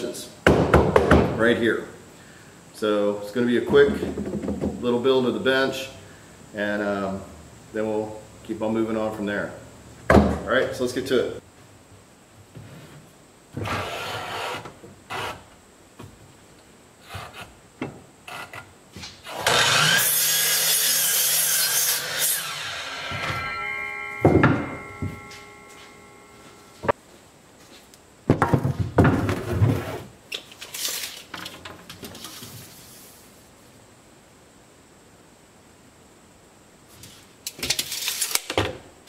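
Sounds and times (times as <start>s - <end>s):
wooden boards knocked and slid: 0.5s - 1.4s, 3.6s - 4.9s, 10.1s - 10.5s, 28.3s - 30.1s
miter saw cutting board: 13.6s - 15.5s, 19.2s - 26.9s
saw blade whining down: 19.3s - 26.8s.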